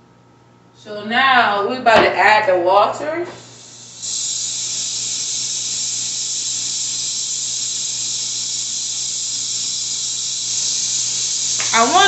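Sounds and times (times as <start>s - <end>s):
water running from a tap: 4.2s - 12.0s.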